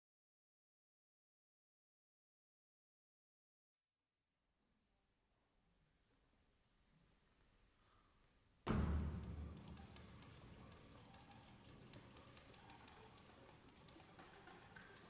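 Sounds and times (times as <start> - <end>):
loud deep ensemble attack: 8.7 - 9.7
soft taps and clicks: 8.7 - 15.0.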